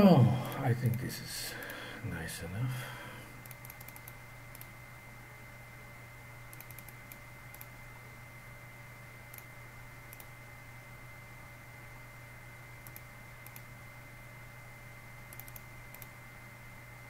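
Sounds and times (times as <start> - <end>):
low electrical hum: 0.0 - 17.0
mouse and keyboard clicks: 3.4 - 4.7, 6.5 - 7.7.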